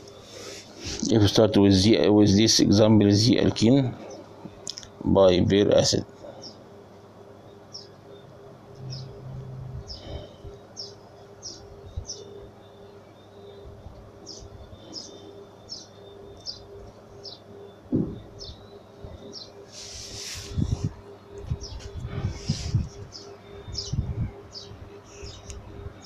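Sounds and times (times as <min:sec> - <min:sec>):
faint steady hum: 0:00.0 - 0:26.0
small bird chirping: 0:07.4 - 0:26.0
low thump: 0:17.9 - 0:18.3.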